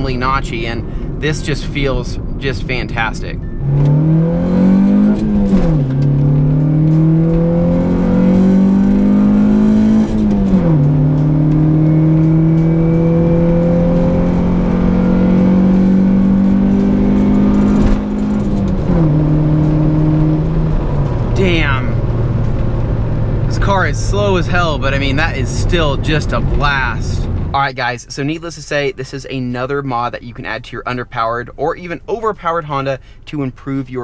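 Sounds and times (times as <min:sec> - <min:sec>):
car engine accelerating through gears: 0:03.4 - 0:27.6.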